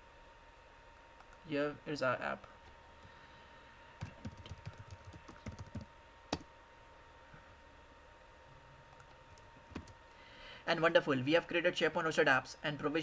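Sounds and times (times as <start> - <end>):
faint steady hum: 0.0 - 13.0
keyboard typing: 4.0 - 6.5, 8.9 - 10.0.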